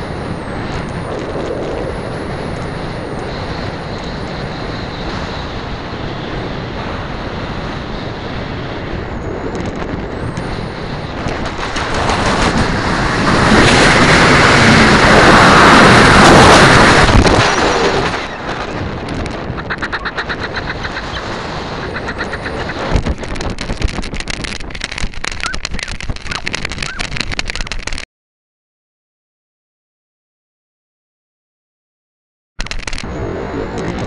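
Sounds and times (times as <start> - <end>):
wind rushing over camera: 0.0 - 28.0, 32.6 - 34.0.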